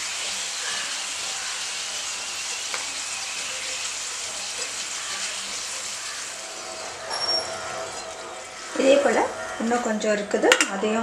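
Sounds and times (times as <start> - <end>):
potato slices sizzling in oil: 0.0 - 11.0.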